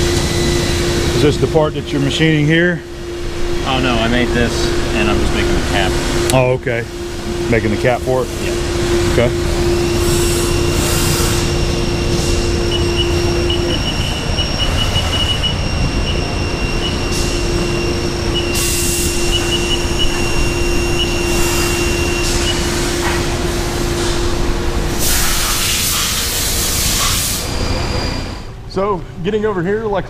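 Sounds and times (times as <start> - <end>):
machine drone: 0.0 - 30.0
machine whine: 0.0 - 30.0
coolant spray hissing: 24.9 - 27.5.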